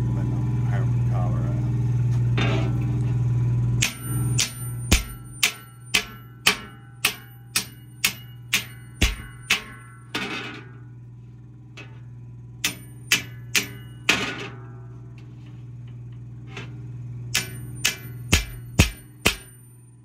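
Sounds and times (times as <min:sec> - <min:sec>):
hammer striking steel saw blade: 0:03.8 - 0:10.8, 0:12.6 - 0:14.7, 0:17.3 - 0:19.8.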